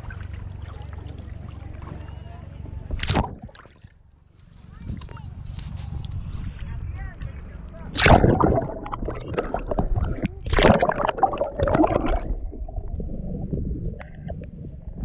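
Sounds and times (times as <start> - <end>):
water splashing and gurgling: 0.0 - 2.2, 2.9 - 3.9, 7.9 - 15.0
low underwater rumble: 0.0 - 15.0.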